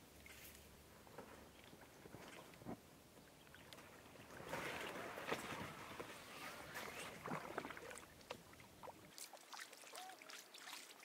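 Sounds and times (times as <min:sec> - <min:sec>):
kayak paddle dipping into water: 0:01.2 - 0:11.0
small splashes and drips: 0:06.7 - 0:11.0.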